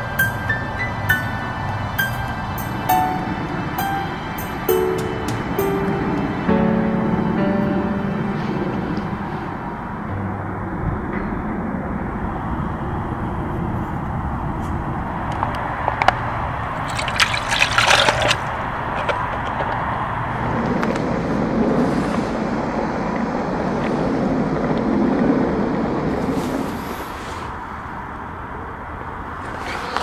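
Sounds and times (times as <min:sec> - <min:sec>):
liquid pouring into metal pot: 0:16.8 - 0:18.4.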